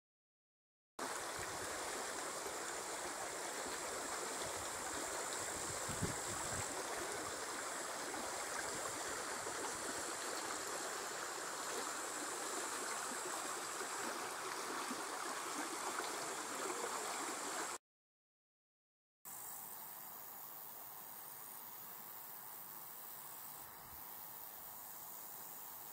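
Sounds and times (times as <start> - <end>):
stream babbling over pebbles: 1.0 - 17.8.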